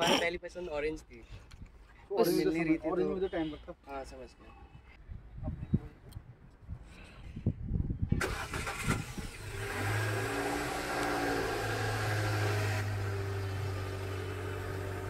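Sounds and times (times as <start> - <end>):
car engine starting and idling: 8.2 - 15.0.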